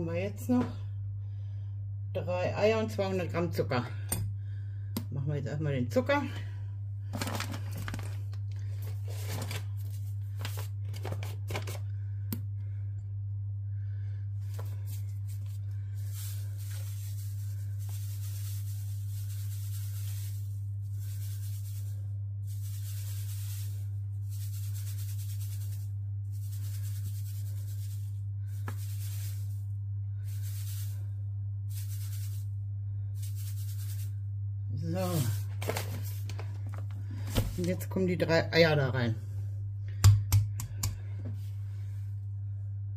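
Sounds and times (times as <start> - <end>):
steady low hum: 0.0 - 42.9
paper bag rustling: 7.1 - 11.8, 14.4 - 18.6, 35.0 - 37.8
sugar pouring into metal bowl: 14.4 - 34.3.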